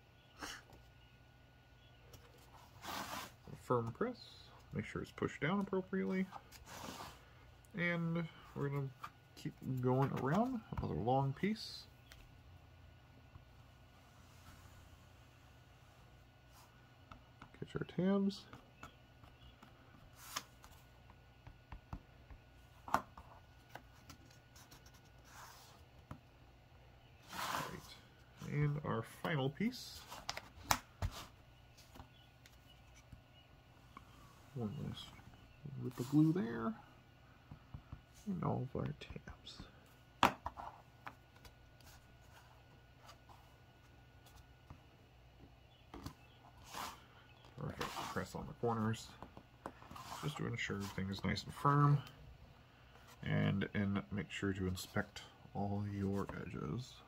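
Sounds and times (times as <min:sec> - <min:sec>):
soft rubbing of wooden pieces: 0:27.1 - 0:52.2.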